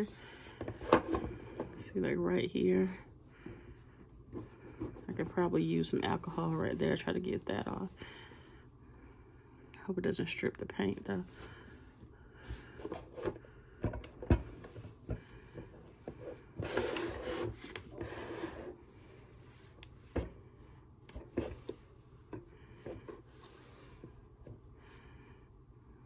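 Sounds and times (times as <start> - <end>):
wipe scrubbing phone: 3.7 - 7.9
knocks and clicks of handling: 12.8 - 16.2.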